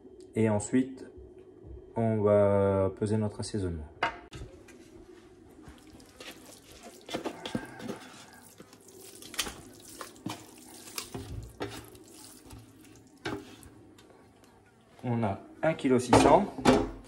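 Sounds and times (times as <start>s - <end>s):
spatula scraping meat from pan: 6.1s - 13.7s.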